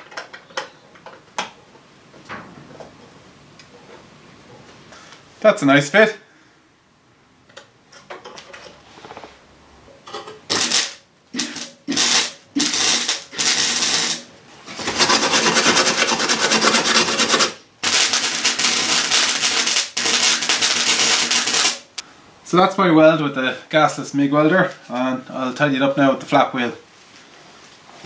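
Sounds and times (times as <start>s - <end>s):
welder arc crackling: 10.5s - 14.3s, 15.0s - 22.0s.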